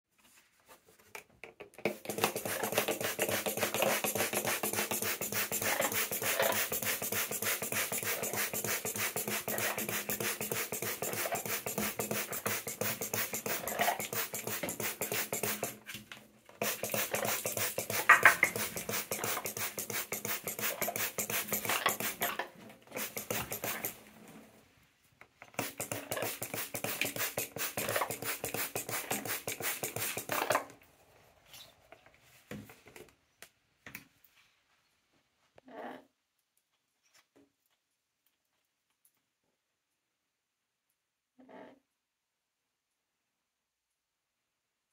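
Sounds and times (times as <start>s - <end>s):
spray bottle mist hissing: 1.9s - 15.8s, 16.6s - 22.3s, 22.9s - 24.0s, 25.5s - 30.6s
parrot making soft sounds: 35.6s - 36.2s.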